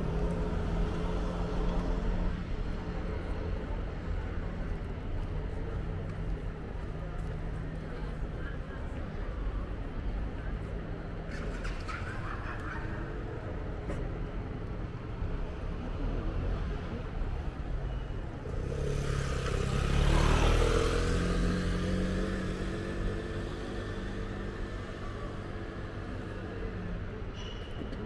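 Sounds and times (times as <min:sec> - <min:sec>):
low rumble of city traffic: 0:00.0 - 0:28.0
vehicle driving past: 0:18.5 - 0:24.8.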